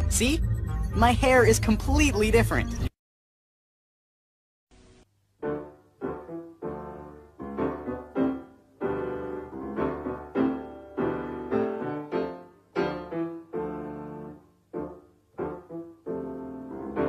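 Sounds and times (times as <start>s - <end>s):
piano playing slow chords: 5.4s - 17.0s.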